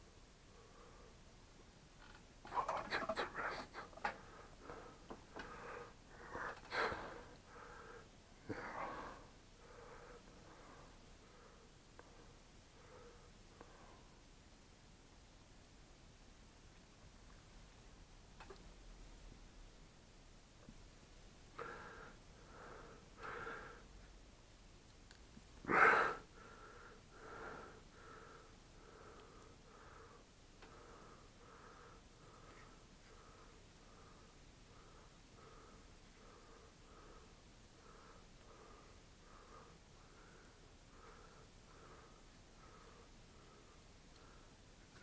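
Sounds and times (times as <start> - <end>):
faint steady hum: 0.0 - 45.0
person breathing close: 2.5 - 14.2, 21.6 - 24.0, 25.6 - 45.0.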